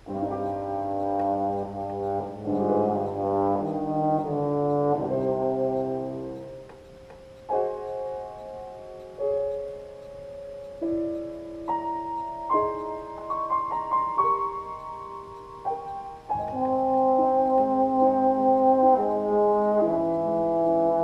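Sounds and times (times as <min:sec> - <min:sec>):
trombone melody: 0:00.0 - 0:06.7, 0:16.3 - 0:21.0
piano accompaniment: 0:00.0 - 0:21.0.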